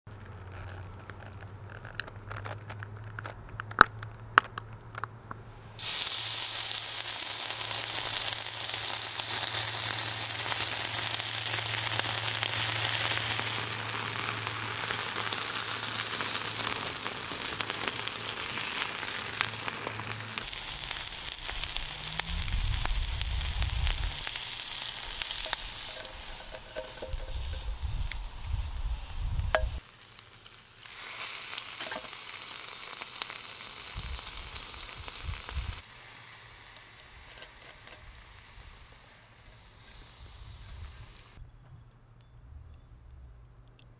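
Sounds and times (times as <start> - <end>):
steak sizzling and hissing: 5.8 - 41.4
low rumbles: 10.4 - 29.8.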